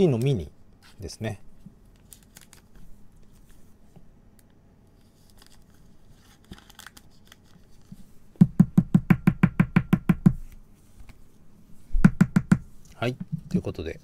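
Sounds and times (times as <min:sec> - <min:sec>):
rustling of cards and plastic sleeves: 0:00.0 - 0:08.3
plastic card holder tapping on table: 0:12.0 - 0:12.6.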